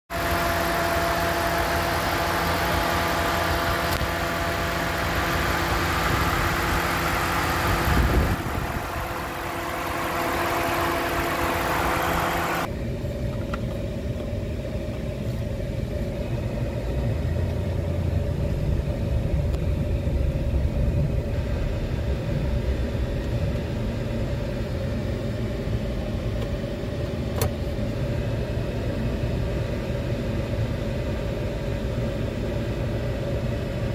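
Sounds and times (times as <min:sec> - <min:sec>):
pickup engine idling: 0:00.2 - 0:12.7, 0:16.0 - 0:26.2.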